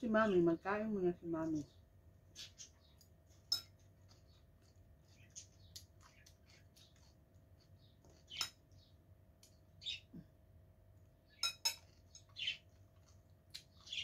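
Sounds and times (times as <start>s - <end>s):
soft chewing: 1.7s - 10.4s, 11.8s - 14.0s.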